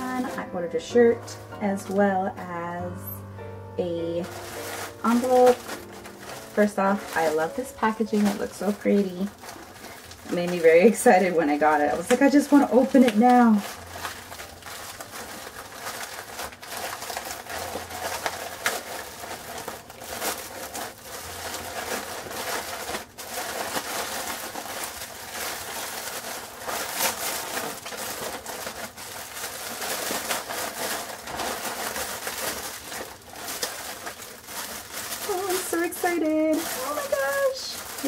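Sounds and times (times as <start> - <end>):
plastic mailer crinkling: 0.0 - 2.2, 4.1 - 38.0.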